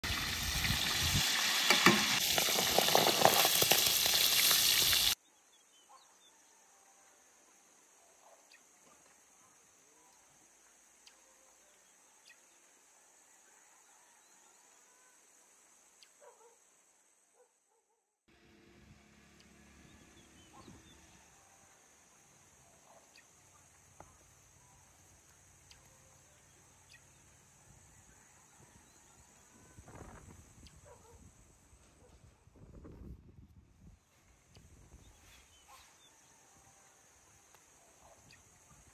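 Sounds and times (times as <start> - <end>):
chicken deep-frying in oil: 0.0 - 5.2
faint outdoor ambience: 3.9 - 38.9.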